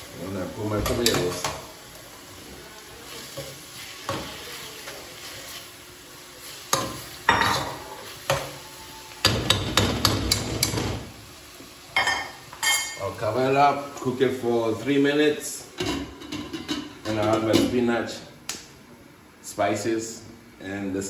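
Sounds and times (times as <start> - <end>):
faint sizzle: 0.0 - 21.0.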